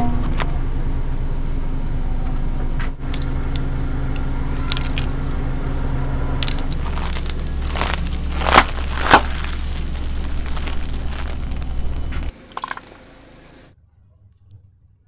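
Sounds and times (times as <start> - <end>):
car engine running low: 0.0 - 13.8
sharp cracks: 6.4 - 13.6.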